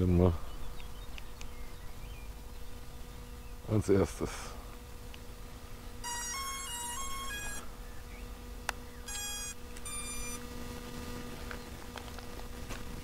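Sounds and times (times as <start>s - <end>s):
stepped electronic beeping tones: 6.0s - 7.6s, 9.1s - 10.4s.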